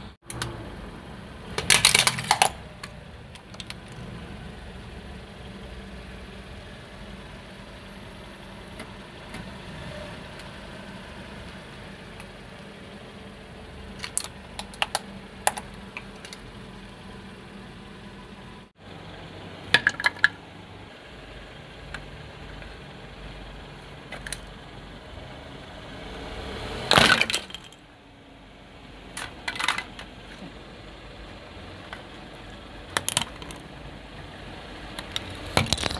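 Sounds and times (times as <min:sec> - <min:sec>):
car engine idling: 0:00.0 - 0:35.9
plastic toys cracking under tyre: 0:01.5 - 0:04.0, 0:14.0 - 0:16.4, 0:19.7 - 0:20.4, 0:26.9 - 0:27.8, 0:32.9 - 0:33.7, 0:35.0 - 0:35.9.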